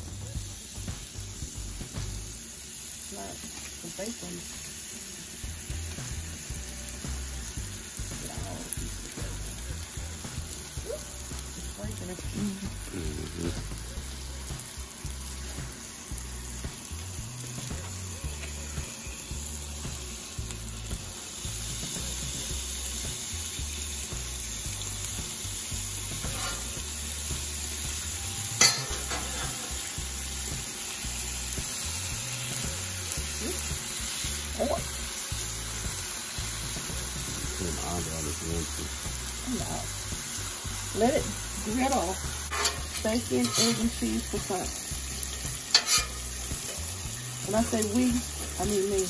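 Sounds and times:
food sizzling in a frying pan: 0.0 - 49.0
utensil clinking against pan: 28.6 - 29.6, 42.5 - 44.0, 45.7 - 46.2.

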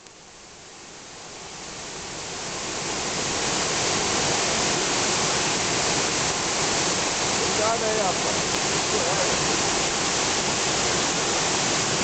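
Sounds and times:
waterfall rushing over rock: 0.0 - 12.0.

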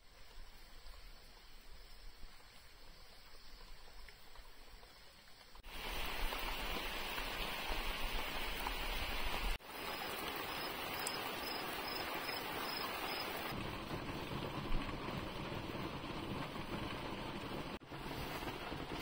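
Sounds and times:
insect chirping: 0.0 - 5.6, 9.6 - 13.5
torrential rain hissing: 0.0 - 19.0.

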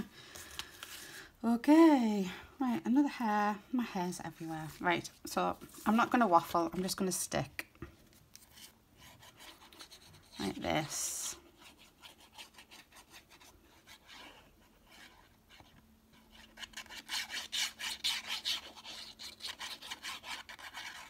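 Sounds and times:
paper being rubbed: 8.5 - 21.0.

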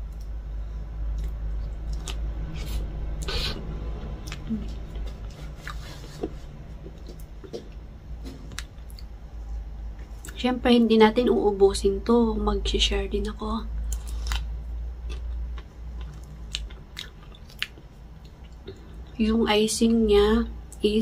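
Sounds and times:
steady low hum: 0.0 - 21.0
chewing and lip smacks: 1.0 - 7.8, 8.4 - 9.1, 13.8 - 19.1.

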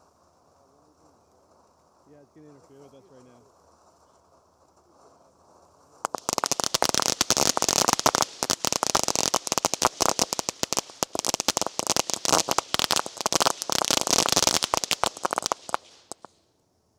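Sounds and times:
fireworks crackling pops: 0.0 - 16.6
hiss of sparks: 5.6 - 16.3.

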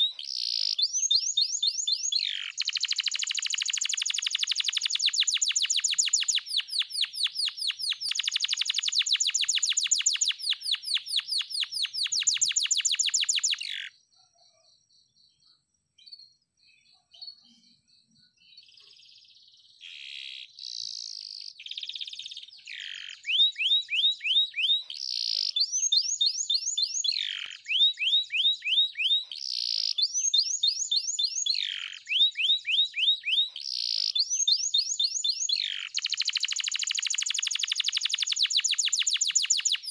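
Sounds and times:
canary singing trills: 0.0 - 15.4, 16.0 - 39.9.

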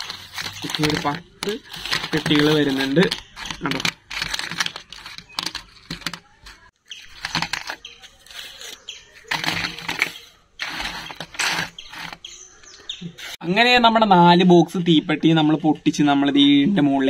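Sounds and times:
cardboard rustling: 0.0 - 12.3.

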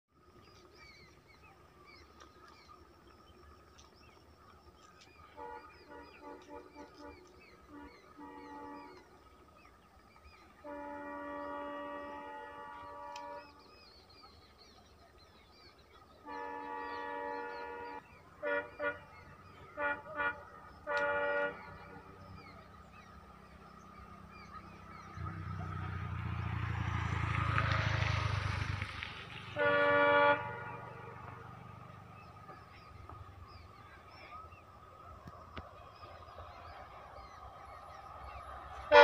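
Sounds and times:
birds chirping: 0.2 - 27.0, 29.5 - 39.0
train rumble: 0.2 - 39.0
train horn blasts: 5.2 - 9.2, 10.4 - 13.9, 16.0 - 23.1, 29.4 - 34.5, 38.2 - 39.0.

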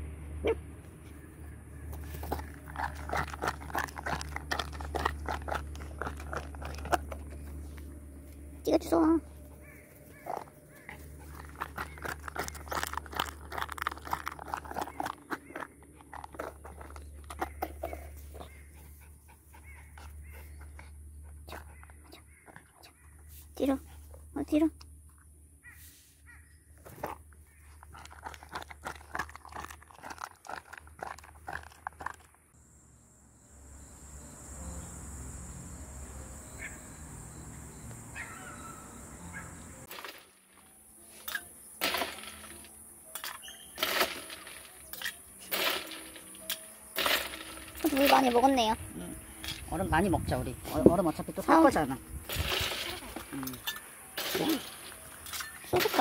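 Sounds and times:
dog chewing rubber ball: 1.9 - 7.6, 10.1 - 18.7, 27.0 - 32.3
high insect drone: 32.6 - 39.9
bird chirps: 33.0 - 39.9, 42.5 - 43.8.

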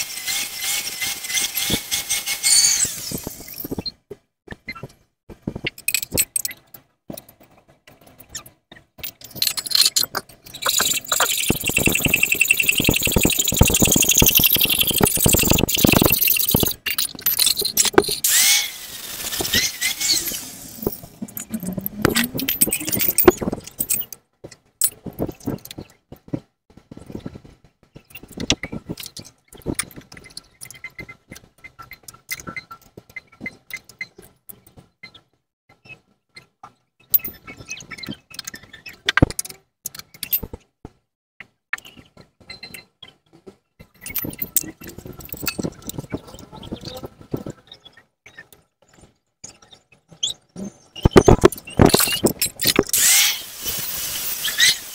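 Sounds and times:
power tool grinding metal: 0.0 - 3.4, 18.2 - 22.7, 52.9 - 54.9
gliding squeal: 1.5 - 3.8, 9.8 - 23.4, 52.9 - 54.9
metal parts clinking: 5.8 - 6.6, 9.0 - 24.2, 51.3 - 54.9.

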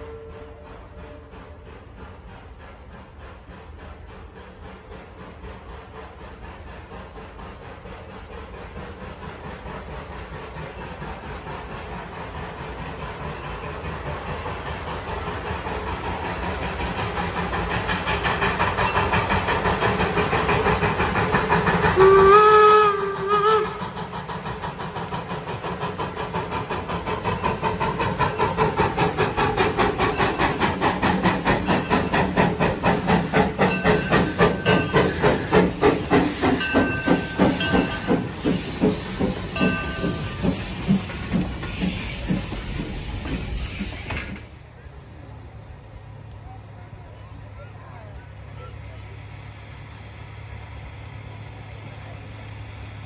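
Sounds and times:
steam whistle blast: 0.0 - 1.6, 22.0 - 23.9
steam hissing: 0.0 - 46.2
steam locomotive exhaust chuffs: 0.0 - 53.0.

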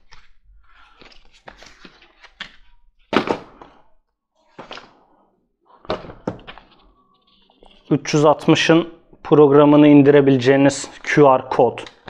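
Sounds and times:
paper rustling: 0.0 - 3.4, 5.8 - 8.8.

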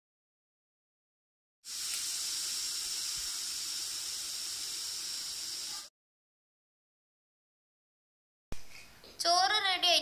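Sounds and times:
pressure cooker steam hissing: 1.6 - 5.9.

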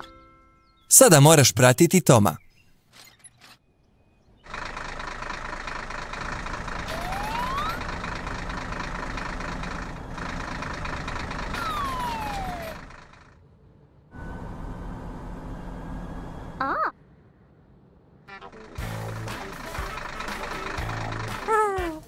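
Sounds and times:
steady engine hum: 3.9 - 22.0
cartoon engine with whine: 4.4 - 17.4, 18.2 - 22.0.

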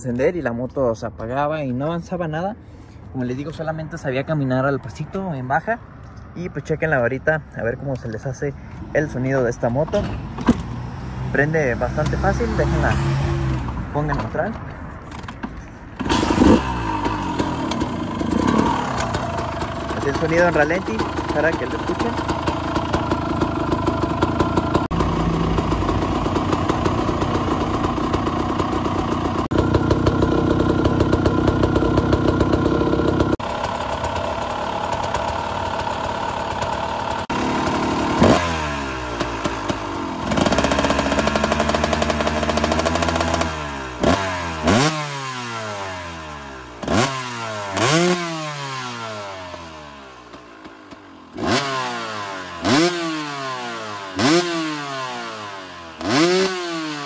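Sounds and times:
engine revving: 10.6 - 14.5, 16.0 - 57.0
two-stroke motorcycle engine idling: 16.0 - 57.0.

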